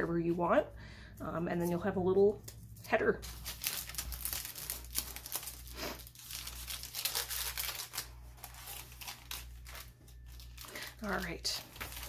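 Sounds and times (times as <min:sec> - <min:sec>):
paper rustling and crinkling: 0:01.6 - 0:12.0.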